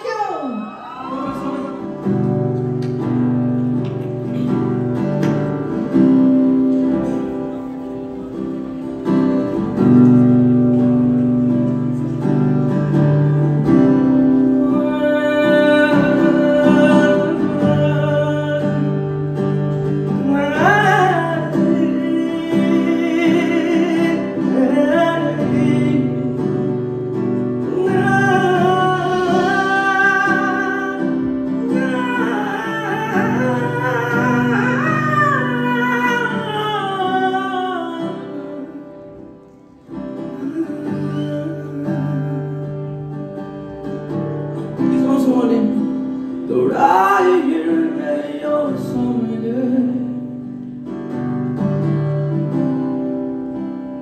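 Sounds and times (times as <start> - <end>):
man singing: 13.9 - 39.1, 40.2 - 43.2, 44.8 - 50.5.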